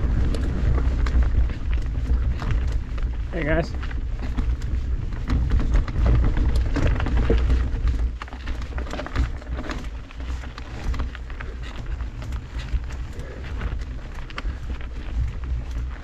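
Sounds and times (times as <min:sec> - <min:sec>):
bike tyres crunching over rocks: 0:00.0 - 0:16.0
gravel clicks and rattles: 0:00.0 - 0:16.0
wind buffeting microphone: 0:00.0 - 0:16.0.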